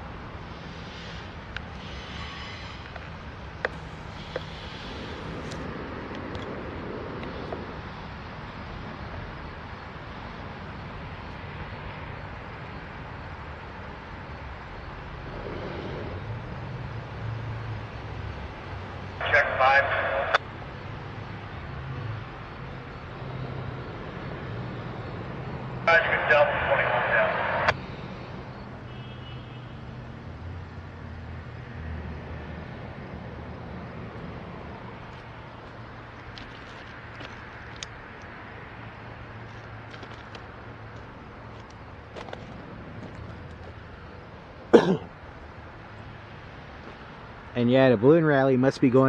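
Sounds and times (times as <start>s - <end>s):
diesel locomotive rumbling: 0.0s - 11.3s, 11.9s - 28.8s
person coughing: 44.7s - 45.1s.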